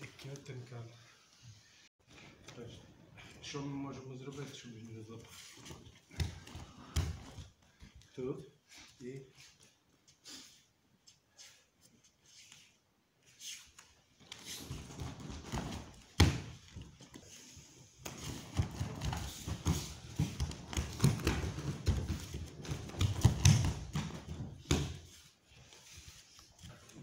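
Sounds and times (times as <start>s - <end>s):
bare feet shuffling on mats: 4.2s - 27.0s.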